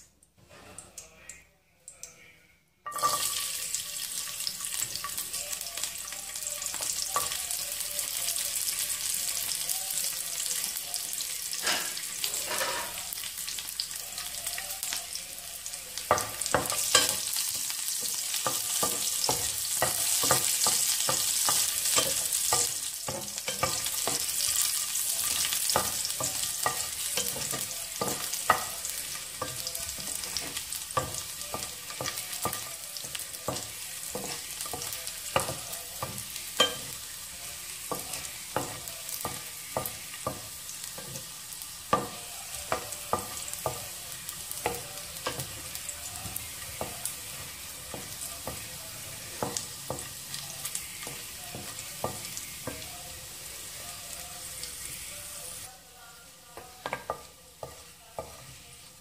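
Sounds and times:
garlic sizzling in hot oil: 2.9s - 59.0s
spatula scraping a pan: 11.6s - 13.0s.

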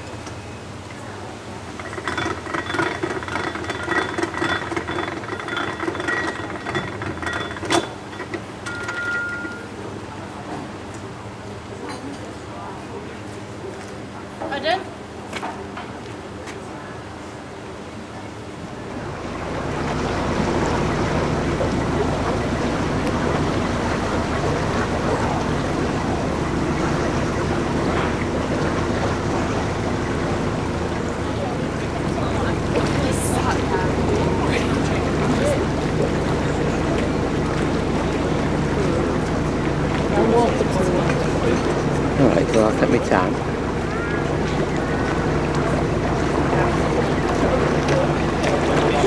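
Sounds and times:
water rushing: 1.4s - 11.6s, 18.0s - 49.0s
diesel engine chugging: 18.8s - 49.0s.

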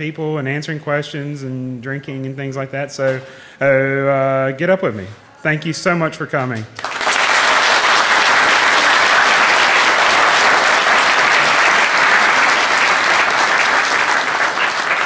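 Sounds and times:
audience applauding: 6.8s - 15.0s.

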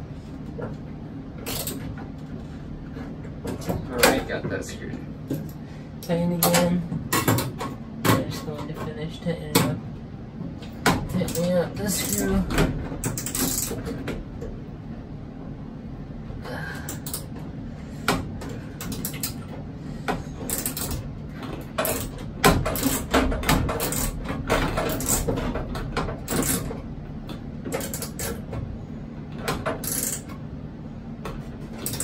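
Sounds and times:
steady low hum: 0.0s - 32.0s
screwdriver clicking and scraping metal: 20.5s - 21.0s, 29.8s - 30.3s, 31.8s - 32.0s.

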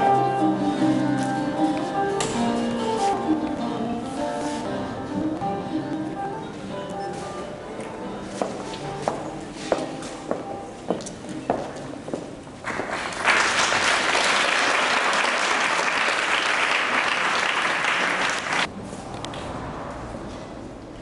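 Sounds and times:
audience applauding: 12.6s - 18.7s.

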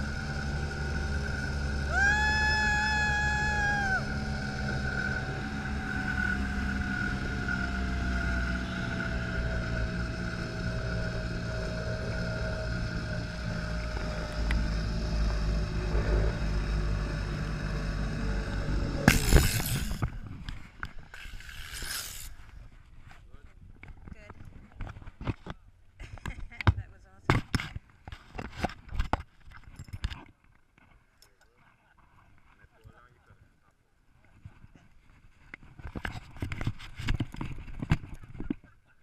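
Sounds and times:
zipline pulley whine: 0.0s - 22.8s.

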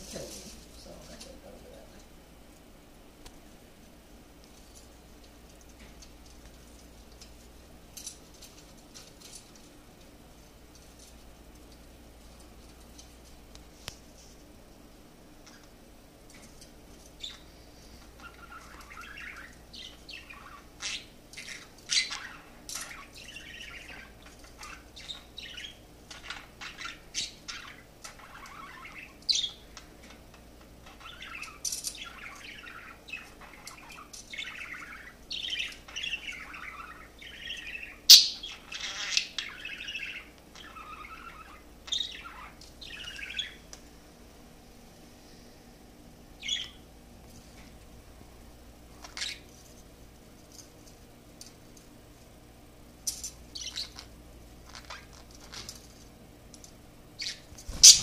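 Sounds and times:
budgerigar warbling and chirping: 31.0s - 43.6s, 46.4s - 46.8s, 49.1s - 49.4s, 53.5s - 54.1s, 57.2s - 58.0s.

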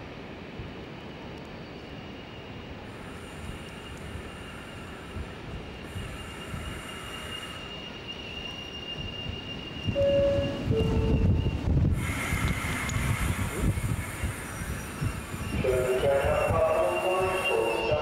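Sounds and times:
train rolling low rumble: 0.0s - 18.0s
wheel squeal: 6.1s - 11.6s.

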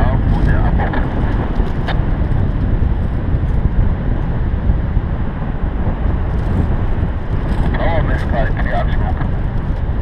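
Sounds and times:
wind buffeting microphone: 0.0s - 10.0s.

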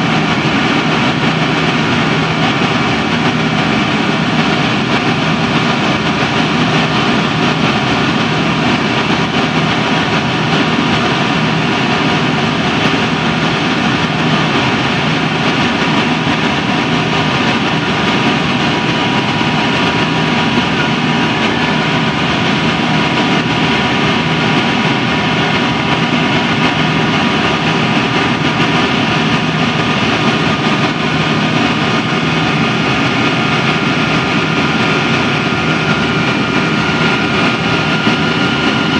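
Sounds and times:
jet engines roaring in cabin: 0.0s - 38.9s
whining tones: 0.0s - 38.9s.

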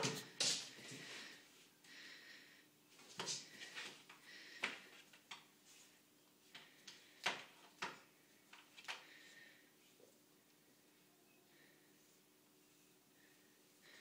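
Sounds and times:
cat paws tapping on a stair: 0.0s - 1.1s.

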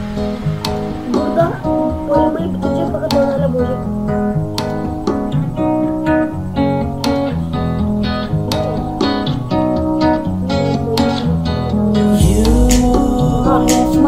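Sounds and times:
acoustic guitar music: 0.0s - 14.0s.

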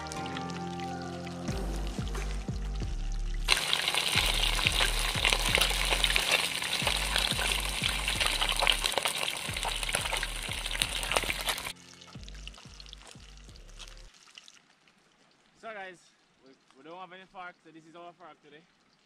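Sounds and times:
background music with bass beat: 0.0s - 3.6s, 4.2s - 8.9s, 9.5s - 14.1s
fish sizzling in hot oil: 3.4s - 15.5s.

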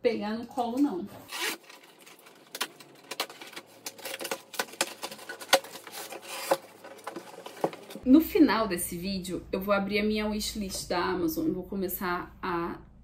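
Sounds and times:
cardboard rustling and crinkling: 1.4s - 8.0s.

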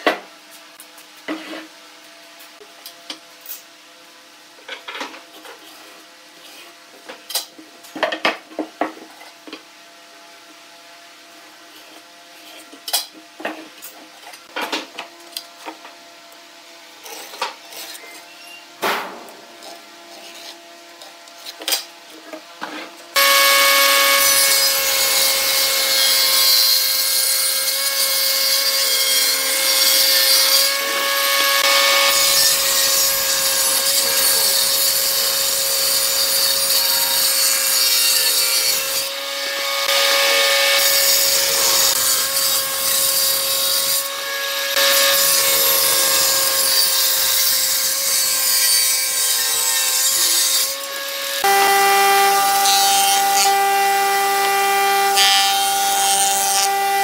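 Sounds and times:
table saw ripping wood: 23.2s - 57.0s.

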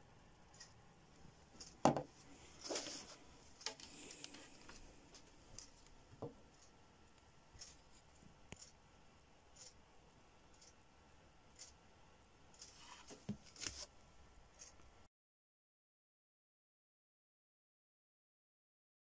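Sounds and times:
knock on wooden table: 1.8s - 2.1s.

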